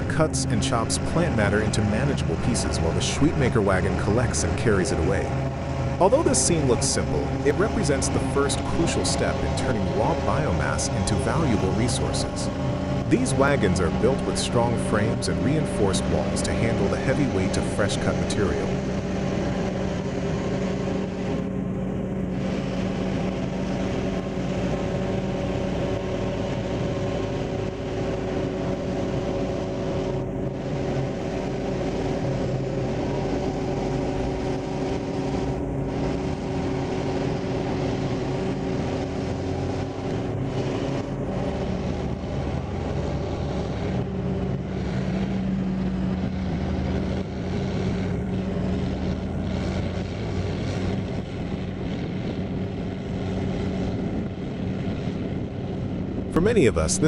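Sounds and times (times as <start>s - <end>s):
tractor pulling wagon: 0.0s - 19.7s
diesel engines running: 0.0s - 57.0s.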